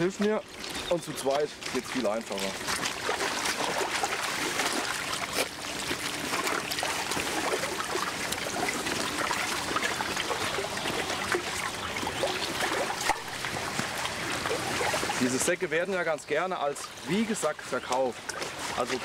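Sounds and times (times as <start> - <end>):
water trickling: 0.0 - 19.0.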